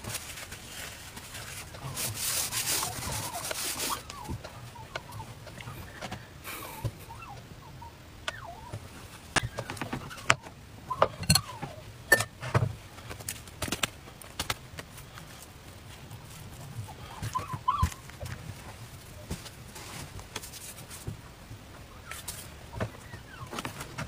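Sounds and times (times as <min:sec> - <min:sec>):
light handling noises and squeaks: 0:00.0 - 0:12.7.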